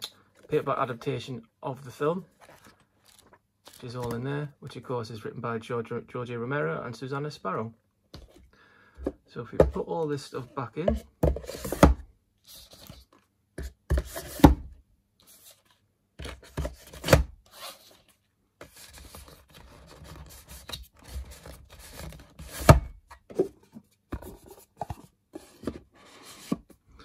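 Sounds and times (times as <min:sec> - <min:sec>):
cardboard rubbing and scraping: 0:16.3 - 0:22.8.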